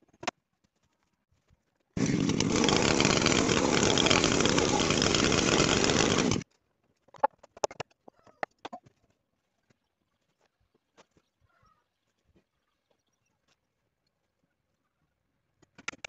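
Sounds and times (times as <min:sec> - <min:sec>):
chainsaw cutting through wood: 0:02.0 - 0:06.4.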